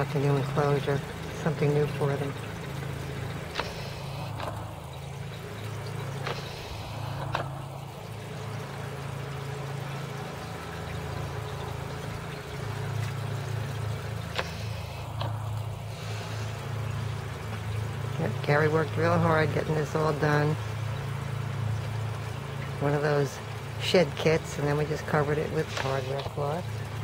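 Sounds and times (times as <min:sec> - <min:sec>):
engine droning: 0:00.0 - 0:27.0
faint clicks: 0:01.1 - 0:08.8, 0:09.9 - 0:17.8.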